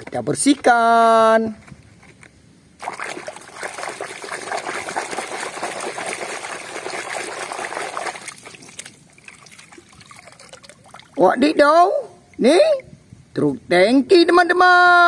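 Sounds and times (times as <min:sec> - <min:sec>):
water sloshing in a basin: 0:02.8 - 0:11.2.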